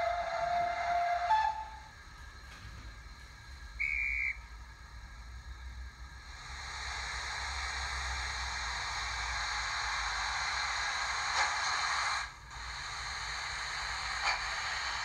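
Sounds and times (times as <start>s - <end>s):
steam hiss from small speaker: 6.1s - 15.0s.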